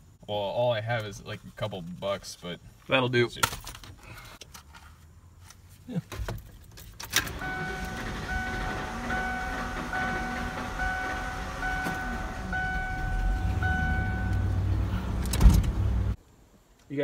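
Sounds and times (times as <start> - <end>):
dashboard warning chime beeps: 7.3 - 14.7
truck engine running: 7.3 - 16.2.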